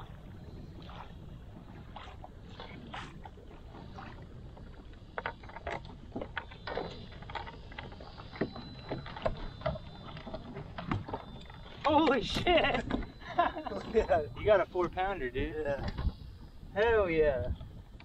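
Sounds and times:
low rumble of water and wind: 0:00.0 - 0:18.0.

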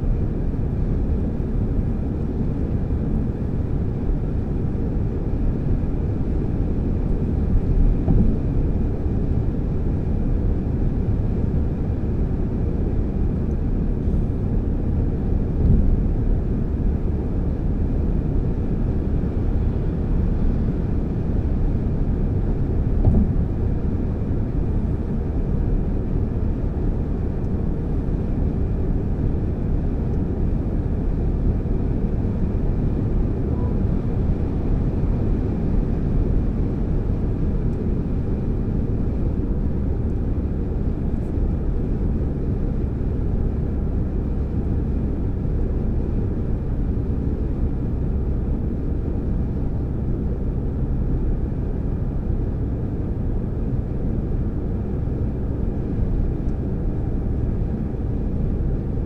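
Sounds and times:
tyres rumbling on asphalt: 0:05.2 - 0:51.8.

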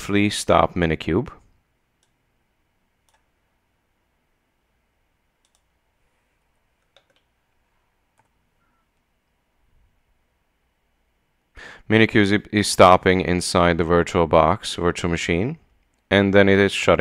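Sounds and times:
faint keyboard clicks: 0:05.4 - 0:05.7, 0:06.8 - 0:07.3, 0:08.1 - 0:09.1.

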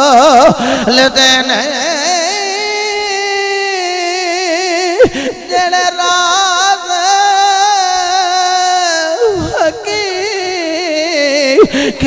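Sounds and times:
man singing long notes: 0:00.0 - 0:12.0.

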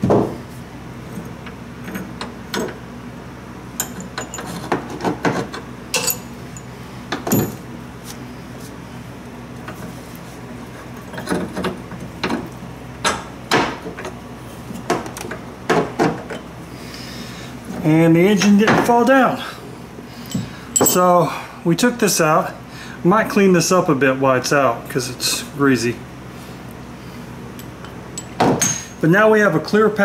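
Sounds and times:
steady low hum: 0:00.0 - 0:30.0
metallic clinks and knocks: 0:03.8 - 0:07.6, 0:20.3 - 0:21.1, 0:27.6 - 0:29.0.

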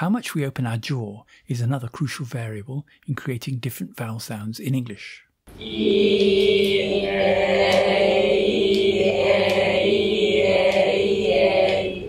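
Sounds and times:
students chanting vowels in unison: 0:05.5 - 0:12.0.

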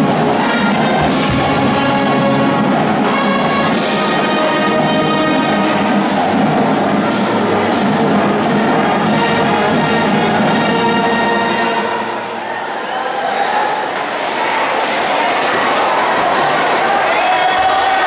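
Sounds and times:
sharp percussion hits: 0:00.0 - 0:12.0
marching band playing: 0:00.0 - 0:12.5.

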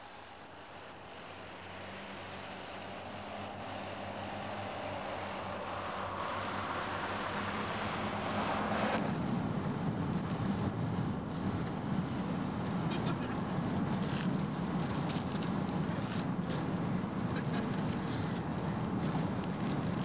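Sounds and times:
car engine rumble: 0:00.0 - 0:20.0
road noise: 0:00.0 - 0:20.0
faint crackles: 0:10.1 - 0:20.0.

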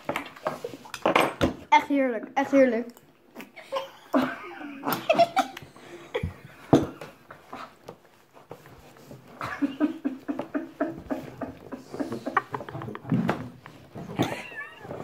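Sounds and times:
boy laughing: 0:03.6 - 0:06.4, 0:09.4 - 0:13.1, 0:14.1 - 0:15.0.

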